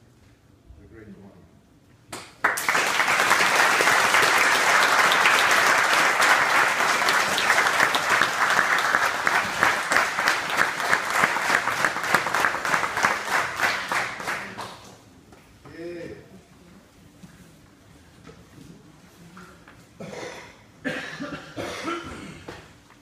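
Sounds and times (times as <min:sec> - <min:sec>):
audience applauding: 0:02.4 - 0:14.8.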